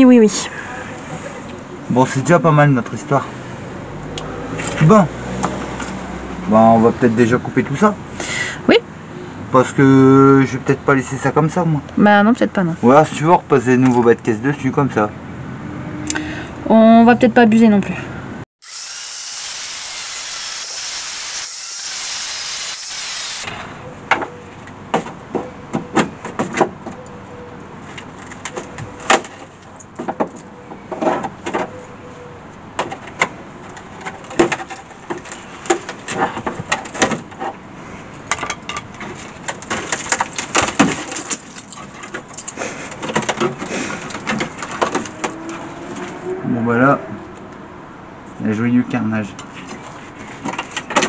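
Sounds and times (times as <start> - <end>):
angle grinder cutting steel: 18.6 - 23.5.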